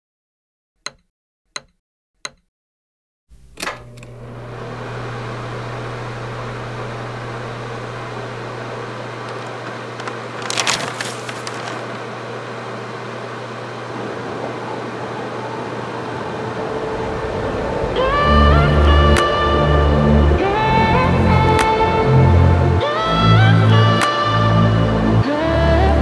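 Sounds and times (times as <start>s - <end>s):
electric fan whirring: 3.3s - 26.0s
fan switch click: 3.4s - 4.2s, 21.5s - 21.8s, 24.0s - 24.3s
brief rustle: 9.3s - 12.0s.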